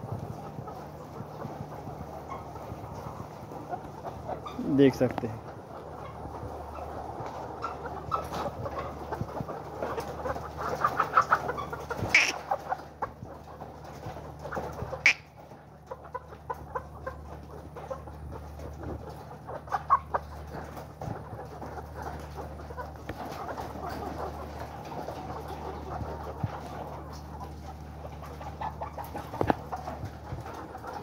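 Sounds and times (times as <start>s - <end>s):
hens clucking and chattering: 0.0s - 31.0s.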